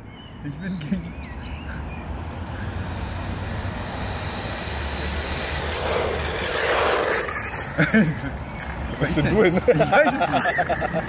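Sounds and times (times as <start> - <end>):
electric rc car on asphalt: 0.8 - 11.0
low rumble: 1.9 - 7.3.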